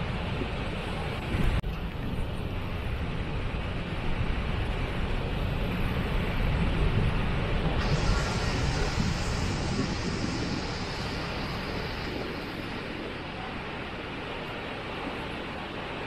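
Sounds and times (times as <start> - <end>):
waterfall roaring: 3.8 - 16.0.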